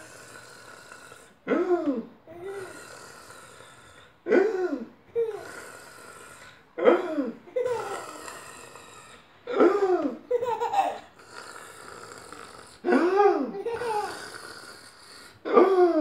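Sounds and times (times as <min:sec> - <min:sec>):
baby laughing: 0:09.9 - 0:11.1, 0:13.0 - 0:14.2.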